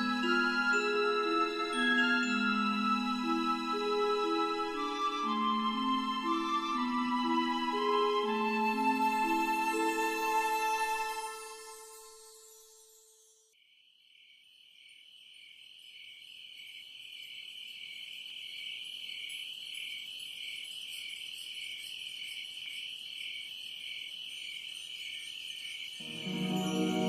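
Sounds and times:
background music: 0.0s - 12.6s, 26.0s - 27.0s
high-pitched insect trill: 8.8s - 27.0s.

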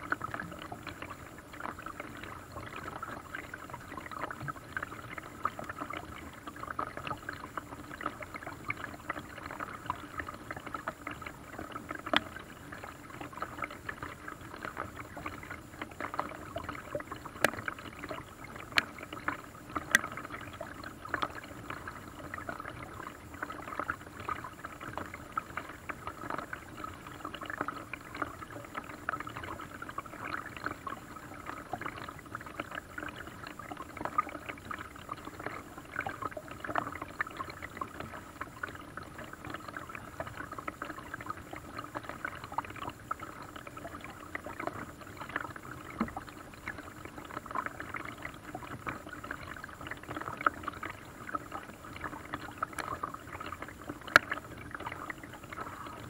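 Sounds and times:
water splashing against boat hull: 0.0s - 56.0s.

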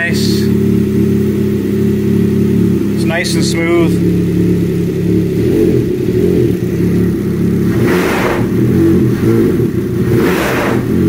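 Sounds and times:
engine idling: 0.0s - 11.0s.

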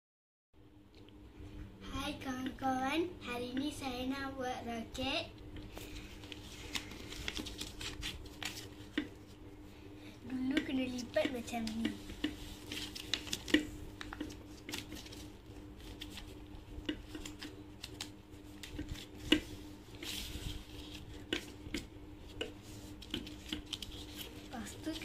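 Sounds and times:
faint steady hum: 0.6s - 25.0s
paper rustling and folding: 5.7s - 9.4s, 10.9s - 25.0s.

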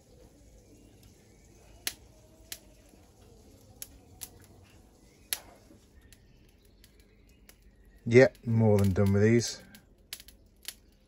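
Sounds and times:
sharp clicks: 5.3s - 11.0s.

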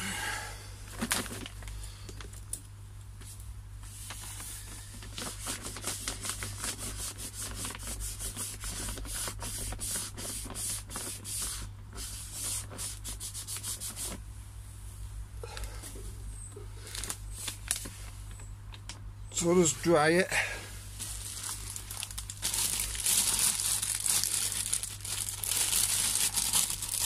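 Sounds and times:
plastic liner crinkling: 0.9s - 2.6s, 4.0s - 11.7s, 16.8s - 19.0s, 21.0s - 27.0s.

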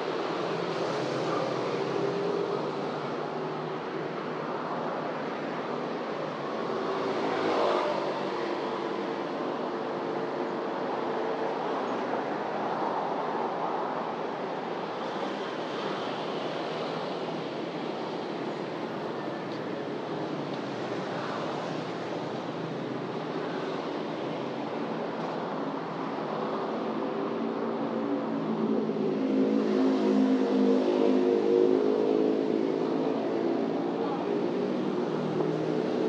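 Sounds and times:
city street traffic: 0.0s - 36.0s.

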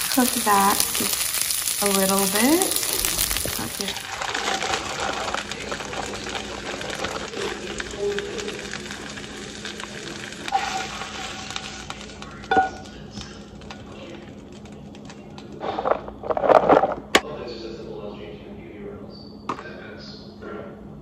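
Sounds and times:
meat sizzling in a frying pan: 0.0s - 13.8s
fork scraping a pan: 10.5s - 11.9s.

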